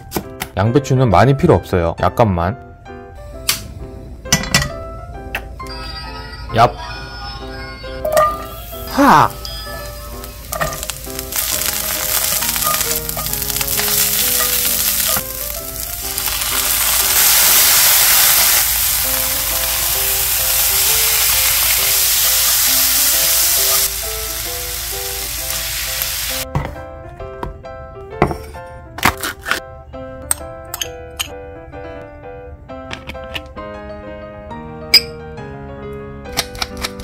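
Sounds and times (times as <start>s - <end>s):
vegetables sizzling in hot oil: 8.4s - 26.4s.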